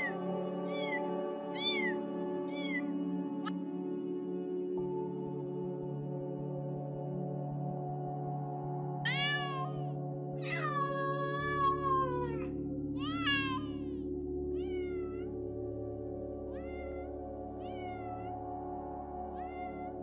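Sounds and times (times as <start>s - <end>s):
kitten meowing: 0.0s - 2.9s, 9.1s - 13.9s, 14.6s - 15.3s, 16.5s - 18.3s, 19.4s - 20.0s
soft ambient music: 0.0s - 20.0s.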